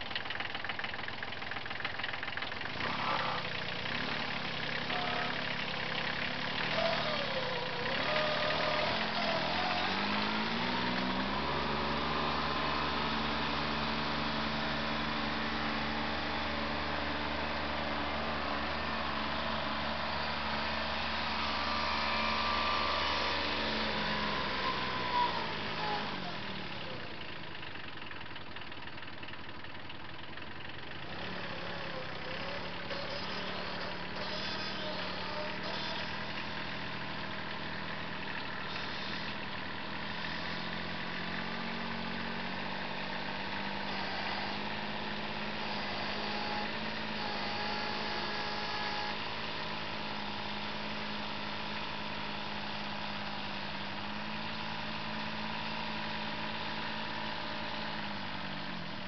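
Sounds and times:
tractor engine running under load: 0.0s - 59.0s.

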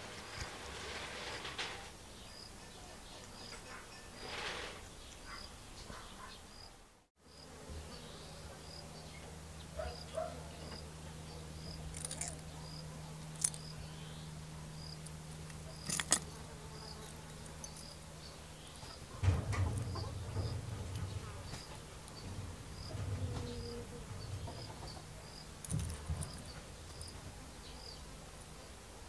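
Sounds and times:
insect buzzing: 9.8s - 28.2s.

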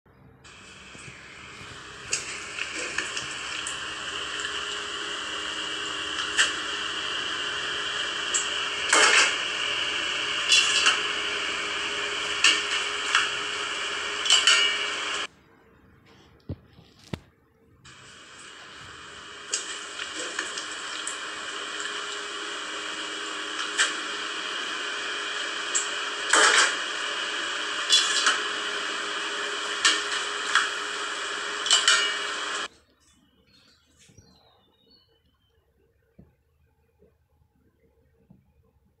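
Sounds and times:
clicks: 0.5s - 5.0s, 22.9s - 24.3s, 29.7s - 32.7s
stove hissing: 0.5s - 15.3s, 17.8s - 32.7s.

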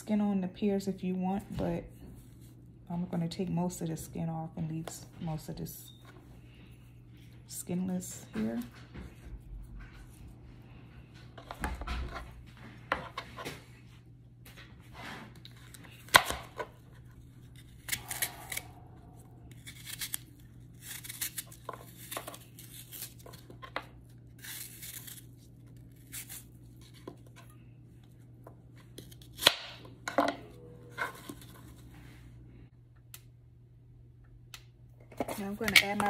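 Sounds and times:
knife slicing crisp apples: 17.4s - 18.8s, 19.5s - 23.5s.

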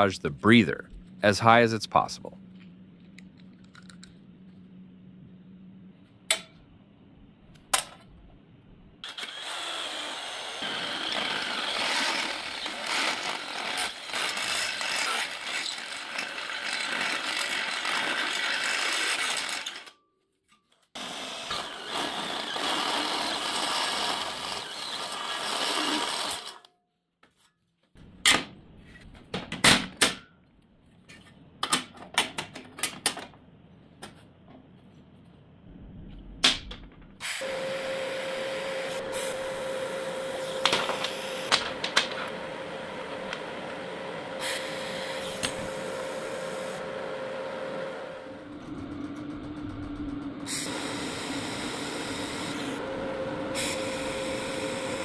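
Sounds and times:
power drill boring through steel: 9.0s - 19.9s, 21.0s - 26.7s, 37.2s - 41.5s, 44.2s - 46.9s, 50.5s - 55.0s.

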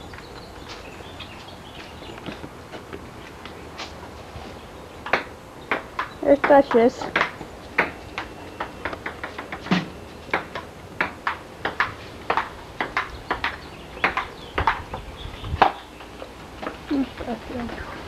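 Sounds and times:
sharp clicks and knocks: 5.0s - 15.0s.

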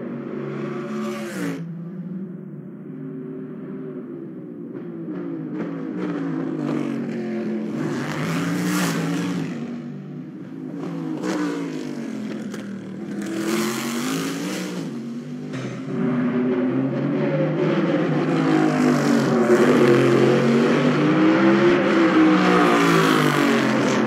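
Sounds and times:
race car engine revving: 3.4s - 24.0s.

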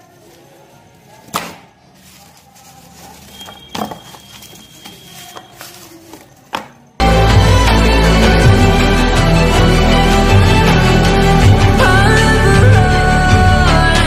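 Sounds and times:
loud music: 7.0s - 14.0s.

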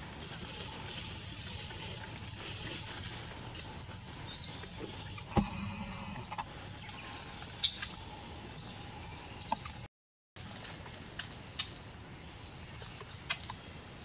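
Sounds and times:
forest ambience drone: 0.0s - 14.0s
bird chirping: 3.6s - 7.9s
dull thud: 5.3s - 6.2s.

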